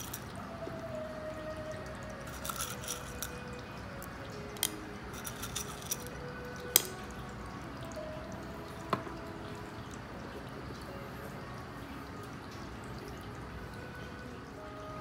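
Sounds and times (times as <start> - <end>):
pebbles clicking against glass: 0.0 - 0.4, 2.2 - 7.1
water fountain trickling: 0.0 - 15.0.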